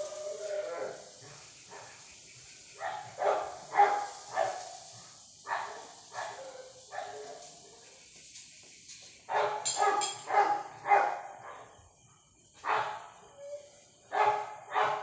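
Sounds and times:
dog barking: 2.8 - 4.6, 5.5 - 7.8, 9.3 - 11.8, 12.6 - 13.1, 14.1 - 15.0.

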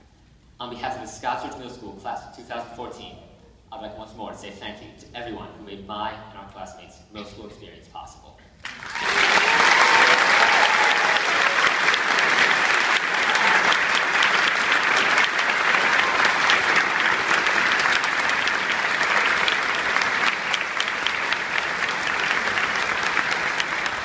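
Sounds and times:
audience clapping: 8.6 - 24.0.

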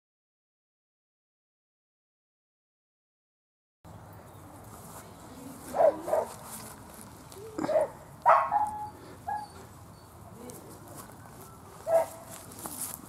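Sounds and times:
dog barking and yipping: 5.7 - 6.3, 7.6 - 9.7, 11.8 - 12.3.

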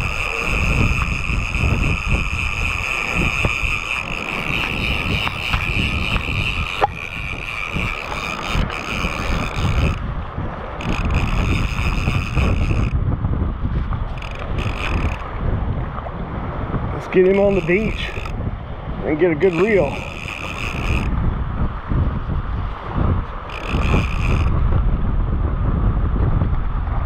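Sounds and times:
fishing reel whining: 0.0 - 13.0, 14.0 - 15.4, 17.0 - 18.5, 19.1 - 21.2, 23.4 - 24.6
wind buffeting microphone: 0.0 - 27.0.

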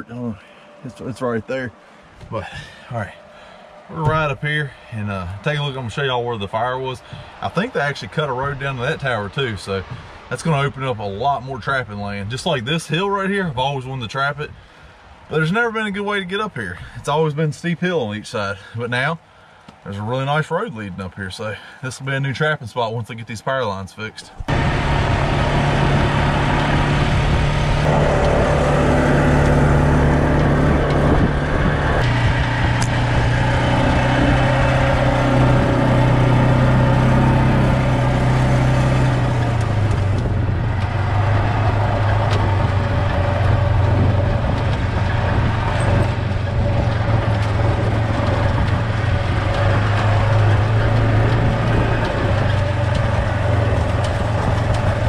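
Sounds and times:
utility vehicle engine running: 24.4 - 55.0.

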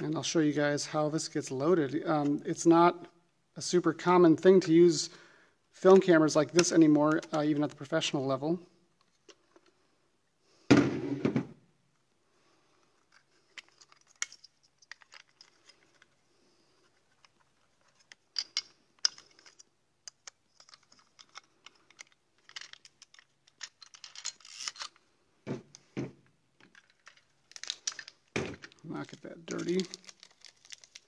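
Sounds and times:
knock: 10.7 - 11.5.

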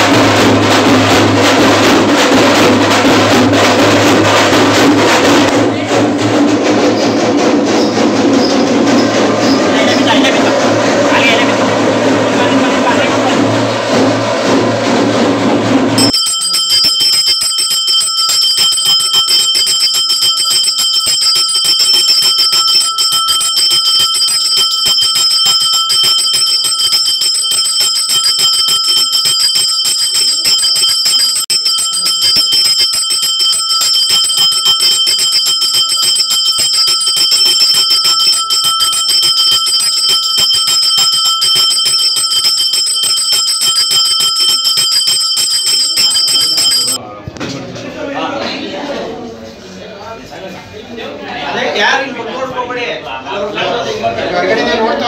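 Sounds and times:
bell ringing rapidly: 0.0 - 47.0.

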